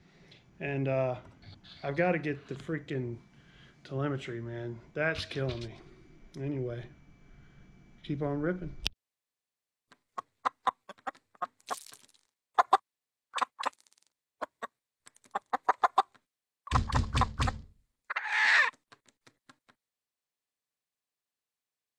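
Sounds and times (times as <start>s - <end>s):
pecking knocks: 16.7s - 17.7s
short squawk: 18.1s - 18.7s.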